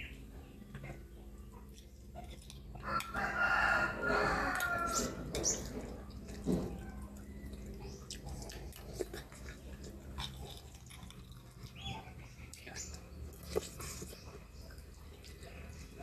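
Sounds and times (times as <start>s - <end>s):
wet eating sounds: 0.7s - 16.0s
rooster crowing: 2.8s - 5.3s.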